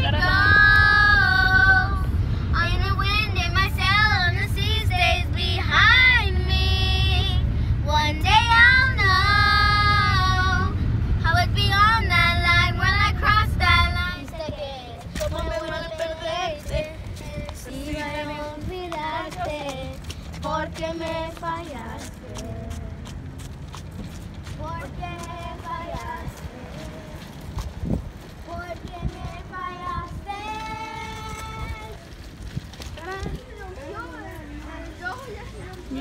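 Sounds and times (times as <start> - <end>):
girls singing together: 0.0 - 7.4, 8.0 - 22.7
low road rumble: 0.0 - 36.0
quiet voices outdoors: 0.0 - 36.0.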